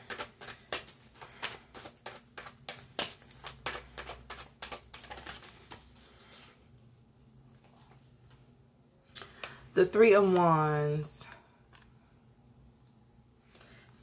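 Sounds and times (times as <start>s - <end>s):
cards being shuffled: 0.0s - 6.5s.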